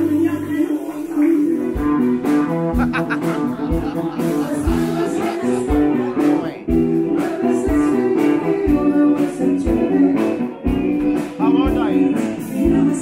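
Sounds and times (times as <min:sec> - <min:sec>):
song with singer and guitar: 0:00.0 - 0:13.0.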